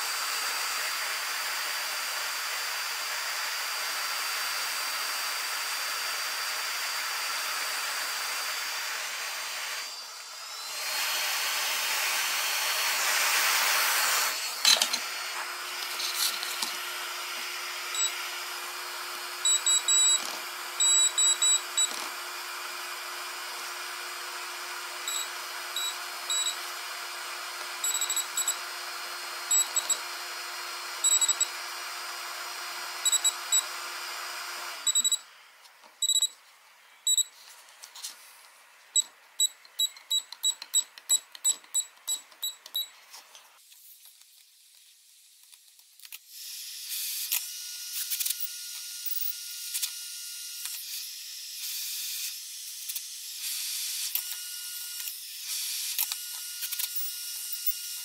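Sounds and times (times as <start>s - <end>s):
hot air rework station blowing: 0.0s - 35.0s
continuity tester beeps: 18.0s - 18.2s, 19.4s - 22.0s, 25.1s - 26.6s, 27.8s - 28.6s, 29.5s - 30.0s, 31.0s - 31.5s, 33.0s - 33.7s, 34.9s - 35.2s, 36.0s - 36.4s, 37.1s - 37.3s.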